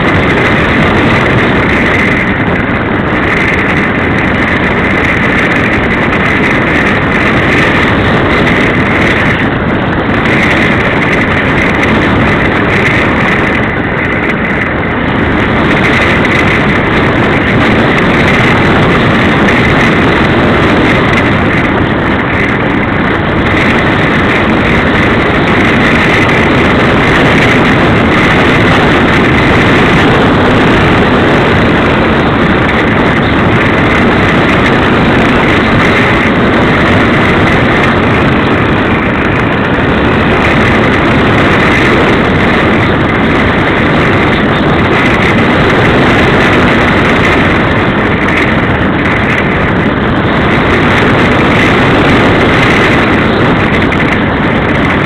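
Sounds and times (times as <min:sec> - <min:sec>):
high wind whistle: 0:00.0 - 0:55.0
wind rushing over microphone: 0:00.0 - 0:55.0.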